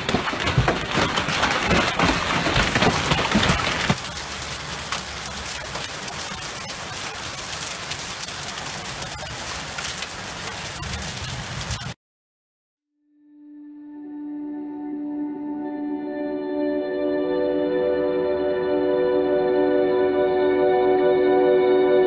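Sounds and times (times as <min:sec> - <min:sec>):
hail and rain hitting a car: 0:00.0 - 0:12.0
hail falling on path and lawn: 0:00.0 - 0:12.0.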